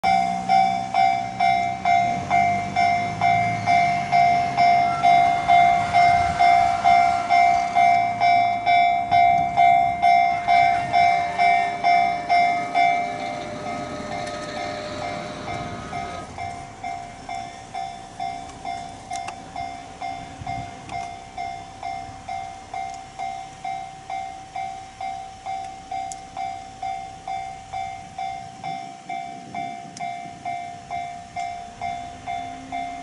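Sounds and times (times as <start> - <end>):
car passing with low rumble: 0.0 - 22.8
level-crossing warning bell: 0.0 - 33.0.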